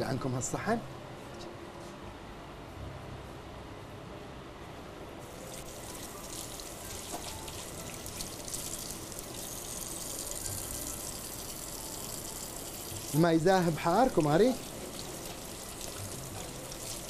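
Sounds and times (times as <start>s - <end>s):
water running: 5.3s - 17.0s.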